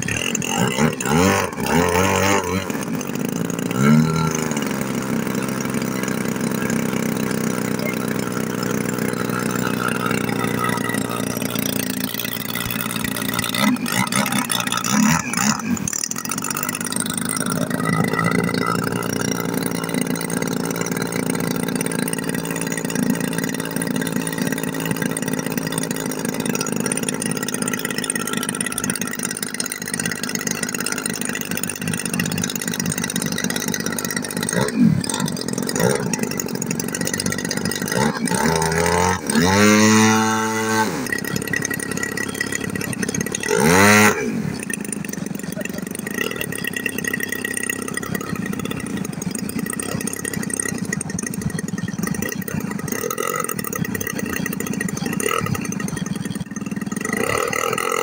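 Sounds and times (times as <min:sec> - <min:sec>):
model airplane engine idling: 0:00.0 - 0:58.0.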